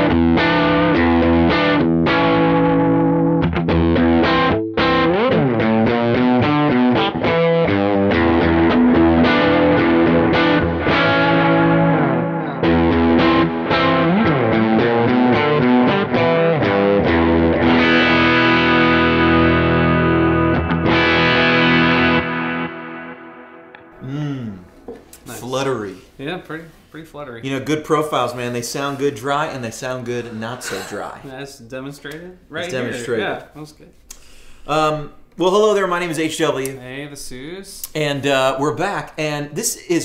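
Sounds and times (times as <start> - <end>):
distorted electric guitar: 0.0 - 24.0.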